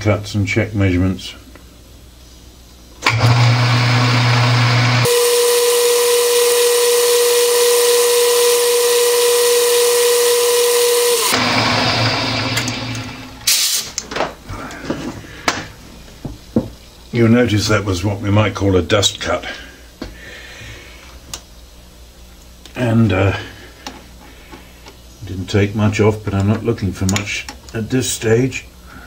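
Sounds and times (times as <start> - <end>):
lathe motor hum: 3.0 - 13.5
lathe spindle whine: 3.0 - 13.5.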